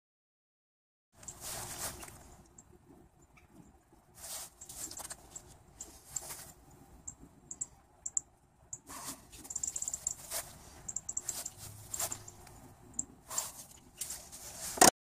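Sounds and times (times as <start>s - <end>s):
small ticks: 7.0s - 10.2s.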